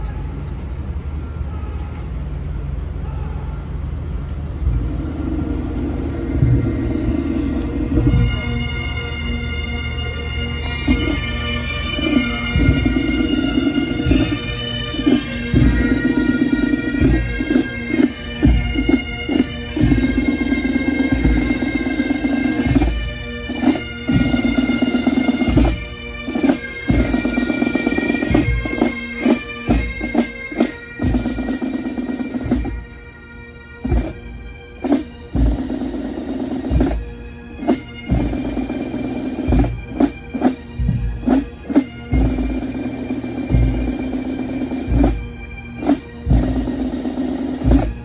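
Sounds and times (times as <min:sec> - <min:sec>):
bagpipes playing over drone: 0:03.4 - 0:48.0
low thumps: 0:04.6 - 0:08.7, 0:12.1 - 0:16.4, 0:39.5 - 0:42.6.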